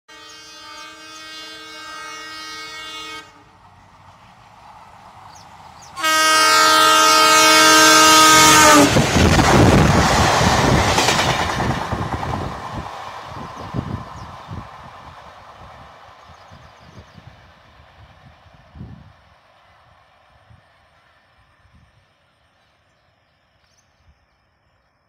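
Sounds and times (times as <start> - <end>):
locomotive air horn blasts: 0.1 - 3.5, 6.0 - 9.0
train passing by: 0.1 - 25.0.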